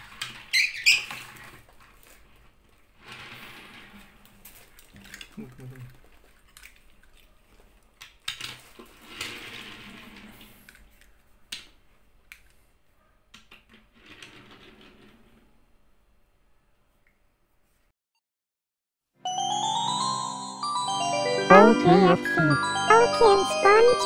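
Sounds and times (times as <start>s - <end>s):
toy trucks scraping on tabletop: 3.0s - 4.4s, 8.9s - 10.8s.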